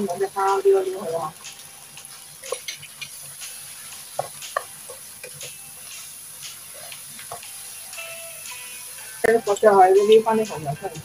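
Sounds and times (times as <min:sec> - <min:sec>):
food sizzling in a wok: 0:00.0 - 0:11.0
spatula knocking and scraping pan: 0:02.4 - 0:07.6.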